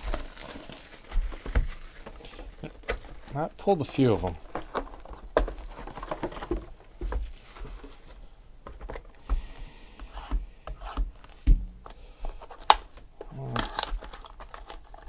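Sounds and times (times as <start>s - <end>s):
rustling packs: 0.0s - 9.3s.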